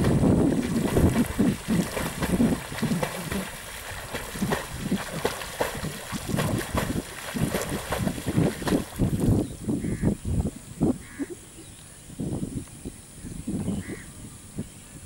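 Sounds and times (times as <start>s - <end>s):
water splashing from swimming: 0.0s - 9.4s
wind buffeting microphone: 0.0s - 15.0s.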